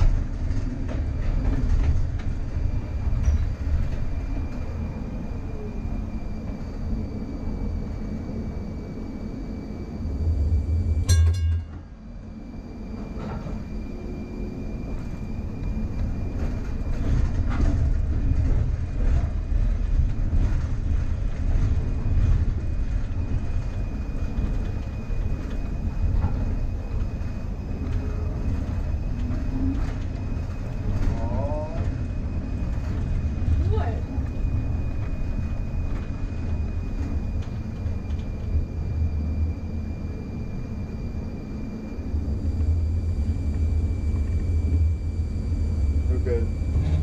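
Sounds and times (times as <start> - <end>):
rail clicks: 0.0 - 6.9, 11.0 - 12.0, 12.9 - 39.5, 46.0 - 47.0
streetcar motors and wheels rumbling: 0.0 - 47.0
short ringing tone: 11.1 - 12.0
wheels squealing: 45.5 - 47.0.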